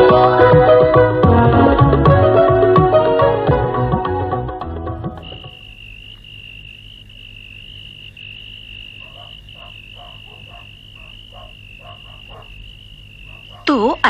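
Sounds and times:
frogs croaking: 5.0 - 14.0
cricket trilling: 5.1 - 14.0.

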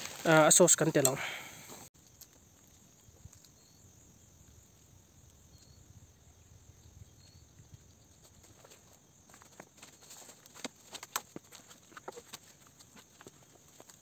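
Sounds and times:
faint outdoor ambience: 0.0 - 14.0
faint high chirps: 5.2 - 8.1.

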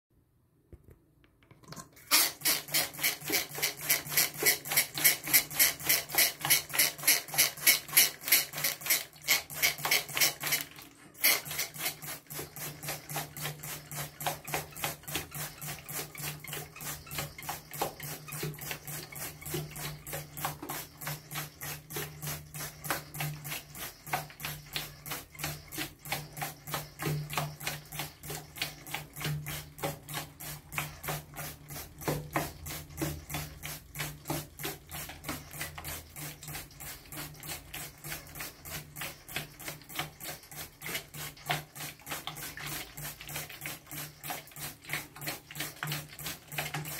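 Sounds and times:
spray bottle squirting: 1.7 - 46.9.

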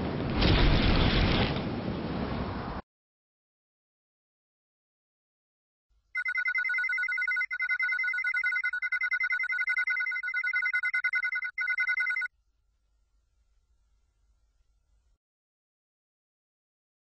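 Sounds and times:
electronic ringing tone trilling: 6.2 - 12.3.

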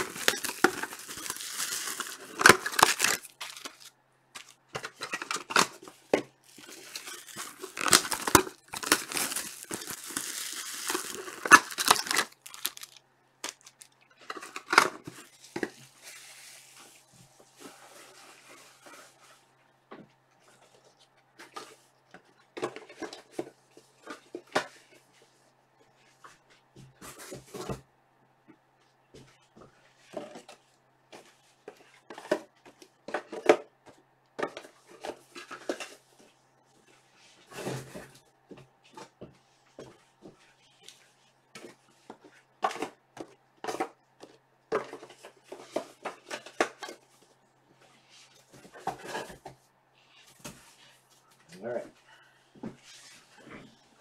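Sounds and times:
objects being handled and set down: 0.0 - 25.2, 41.5 - 49.6.

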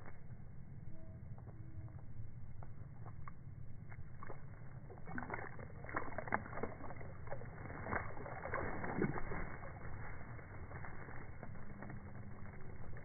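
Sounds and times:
steady low rumble: 0.0 - 13.0
bird splashing in water: 4.0 - 13.0.

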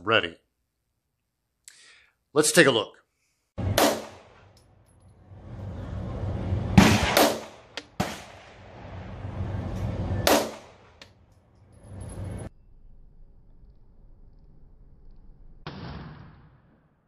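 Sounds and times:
pistol shots: 3.7 - 4.5, 6.8 - 8.6, 10.2 - 11.0.

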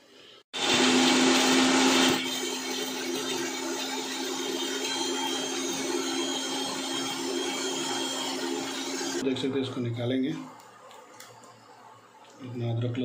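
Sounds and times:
electric mixer grinder running: 0.6 - 9.2.

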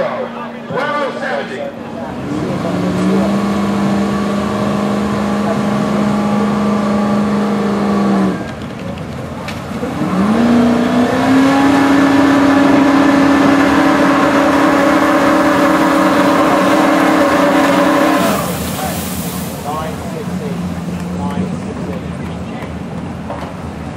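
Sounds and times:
fire truck engine revving: 1.7 - 23.9
hose spraying water: 9.5 - 22.3.

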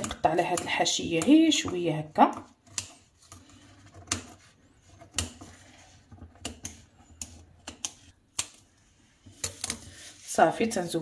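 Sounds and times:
scissors snipping pastry: 0.0 - 3.4, 6.4 - 8.7.

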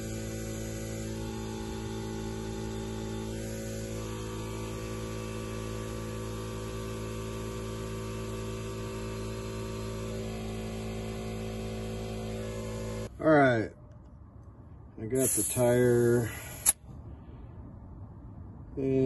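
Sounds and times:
air compressor running: 0.0 - 13.2, 15.1 - 16.8.

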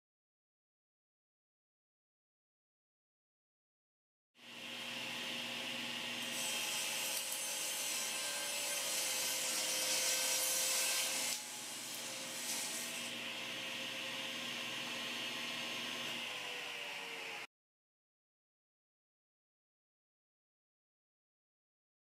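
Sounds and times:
saw motor humming: 4.4 - 17.5
table saw cutting wood: 4.4 - 17.5.

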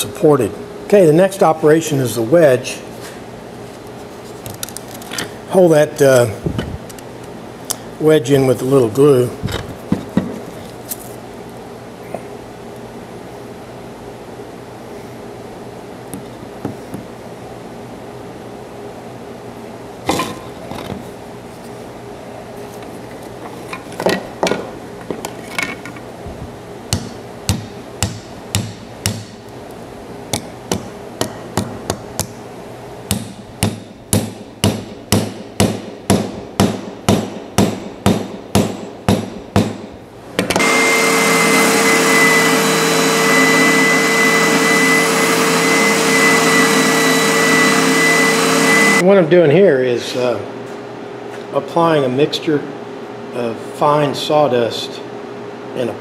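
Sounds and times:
spindle sander whining: 40.5 - 49.0.

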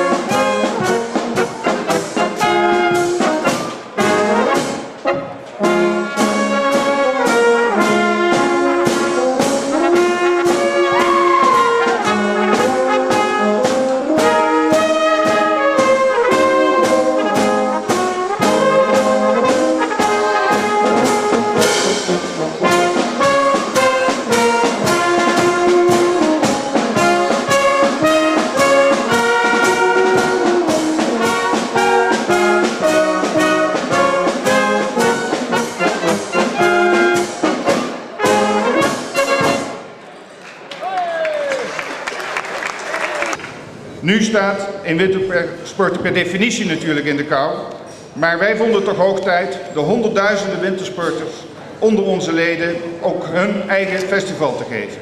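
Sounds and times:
brass band playing: 0.0 - 40.0
bass drum and hand cymbals: 5.8 - 39.8.

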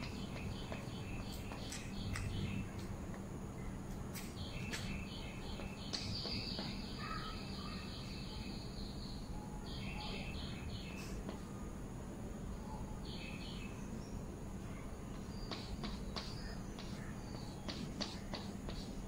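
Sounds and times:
chalk tapping on blackboard: 15.5 - 19.0.

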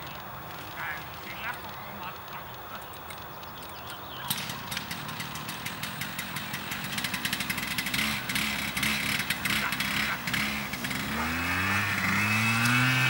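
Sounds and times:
small petrol engine running: 0.0 - 13.0
dense rattle of clicks: 0.5 - 9.5.

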